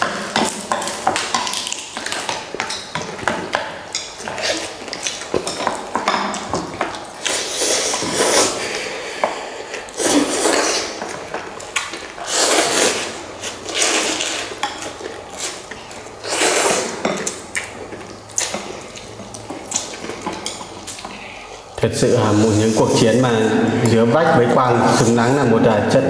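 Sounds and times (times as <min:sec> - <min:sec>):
utensils clicking against bowls: 0:00.0 - 0:08.4
noodles being slurped: 0:07.2 - 0:21.6.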